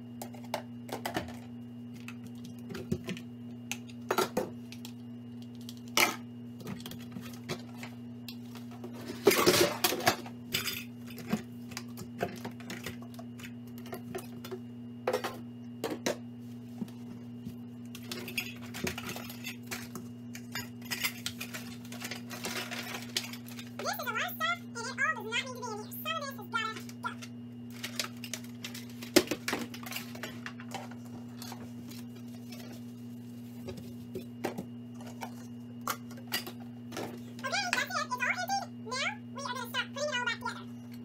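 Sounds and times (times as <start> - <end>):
plastic containers clattering: 27.7 - 32.8.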